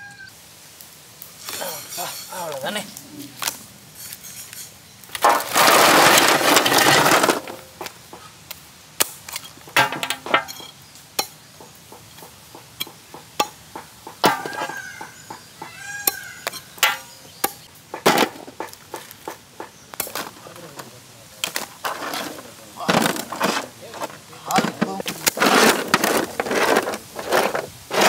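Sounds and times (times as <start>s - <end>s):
chicken calling: 0.0s - 0.4s, 13.7s - 17.7s
rush onto metal plate: 5.2s - 7.8s, 9.7s - 10.7s, 21.4s - 28.0s.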